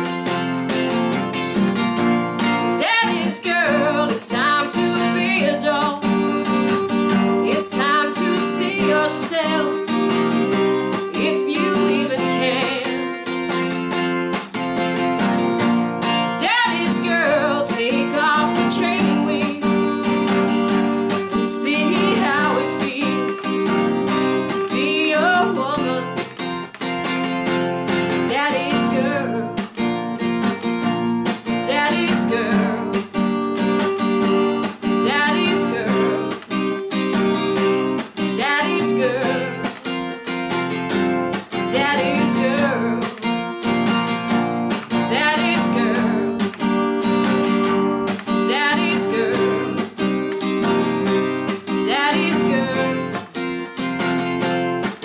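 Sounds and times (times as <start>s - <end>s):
acoustic guitar strumming: 0.0s - 55.0s
woman singing: 2.6s - 13.3s, 16.2s - 26.3s, 27.9s - 29.8s, 31.4s - 33.2s, 34.8s - 40.0s, 40.9s - 43.6s, 44.3s - 53.4s.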